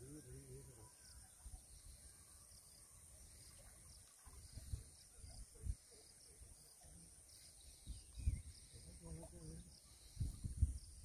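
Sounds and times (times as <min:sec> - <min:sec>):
faint high chirping: 0:00.0 - 0:11.0.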